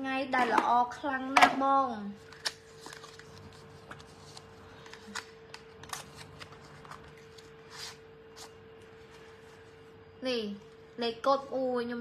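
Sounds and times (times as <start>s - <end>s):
paper rustling: 2.3s - 9.4s.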